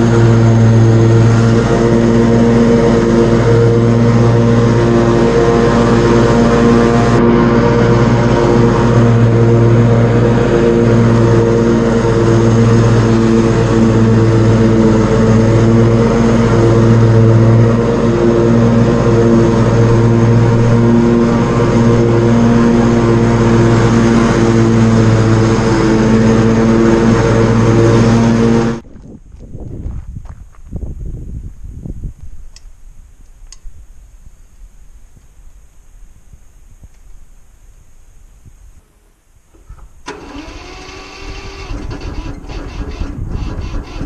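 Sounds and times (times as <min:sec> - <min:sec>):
tractor engine running: 0:00.0 - 0:29.1, 0:39.4 - 0:44.0.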